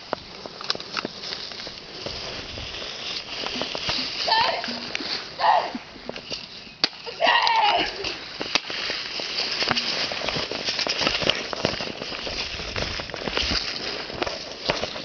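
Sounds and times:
footsteps through dry leaves: 0.0s - 15.0s
person calling out: 4.2s - 5.8s.

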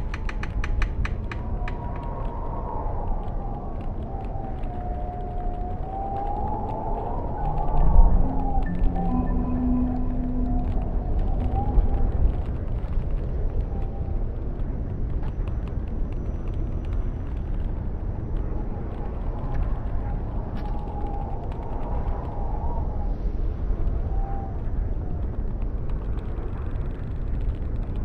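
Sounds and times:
windmill clicking and creaking: 0.0s - 19.9s
wind rumbling: 0.0s - 28.0s.

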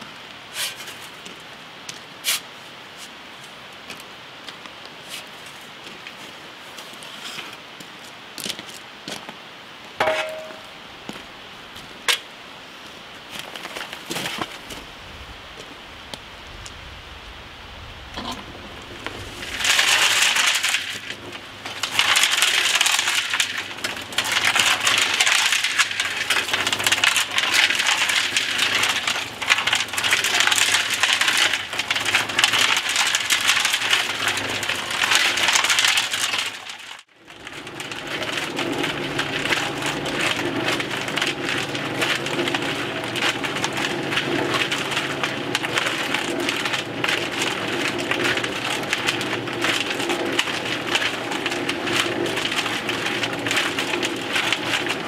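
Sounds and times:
concrete mixer drum rattling: 10.0s - 12.3s, 18.0s - 55.0s
concrete mixer humming: 10.0s - 12.3s, 13.0s - 55.0s.

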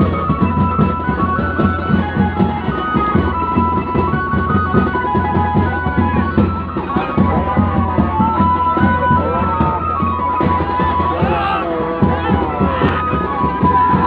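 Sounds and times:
fast drumbeat: 0.0s - 14.0s.

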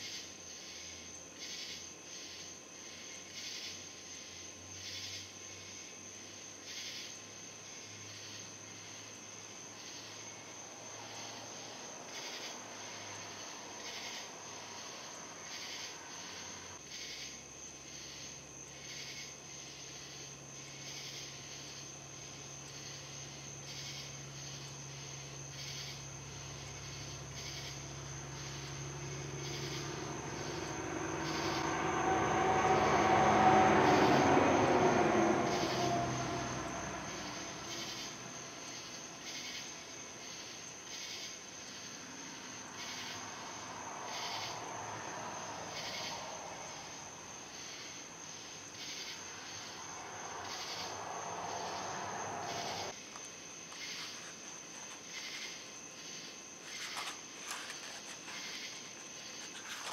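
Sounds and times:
passing vehicle engine: 7.9s - 16.8s, 21.3s - 40.4s, 41.4s - 53.0s.

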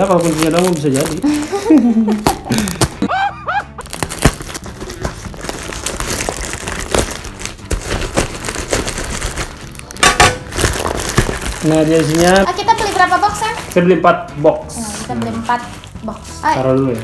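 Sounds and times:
plastic bag crinkling: 0.0s - 3.1s, 3.8s - 17.0s
cartoon laughter: 3.0s - 3.8s.

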